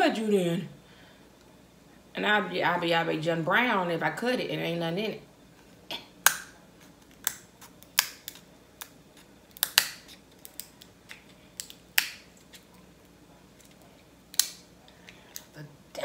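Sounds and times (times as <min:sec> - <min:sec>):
shears cracking crab shell: 0:06.1 - 0:15.6.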